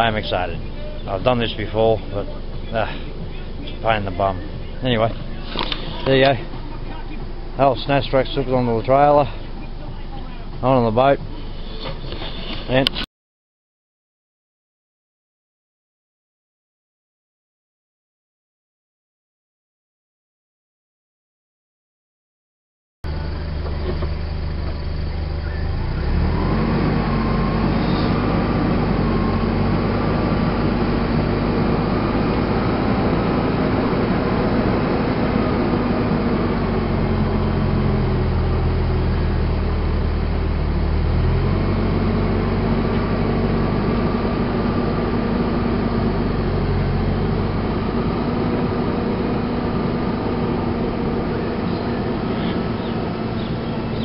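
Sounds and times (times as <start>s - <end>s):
vehicle engine revving under load: 0.0s - 9.8s, 23.1s - 54.0s.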